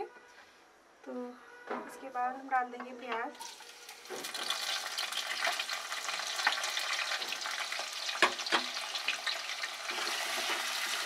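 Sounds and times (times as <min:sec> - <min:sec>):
onions sizzling in hot oil: 0:03.4 - 0:11.0.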